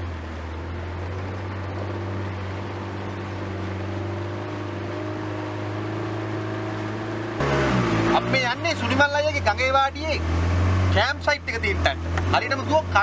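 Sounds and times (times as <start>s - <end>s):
motorboat engine humming: 0.0s - 13.0s.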